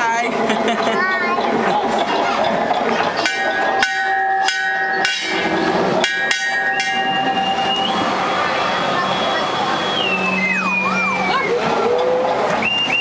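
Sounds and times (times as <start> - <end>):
metal being struck: 2.6 - 8.7.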